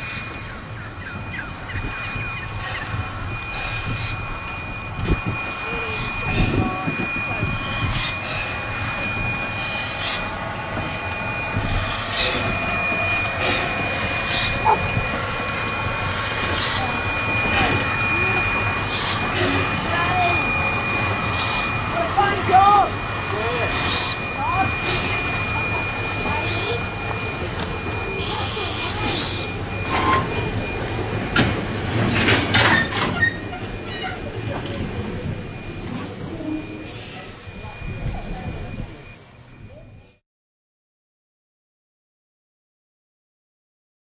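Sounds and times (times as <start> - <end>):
steam locomotive chuffing: 0.0 - 40.0
train carriages rumbling past: 0.0 - 40.0
wheels and couplings clanking: 26.2 - 37.0.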